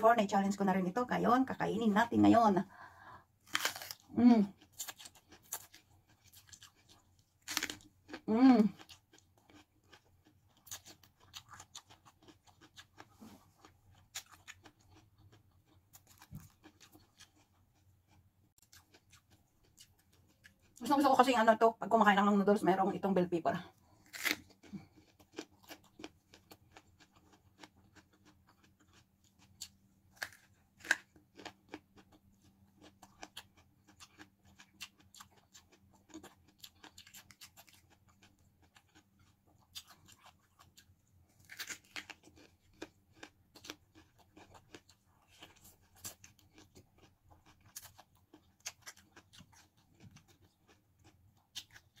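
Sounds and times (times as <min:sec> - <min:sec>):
crisp chewing crunches: 0:03.4 - 0:20.8, 0:23.9 - 0:52.0.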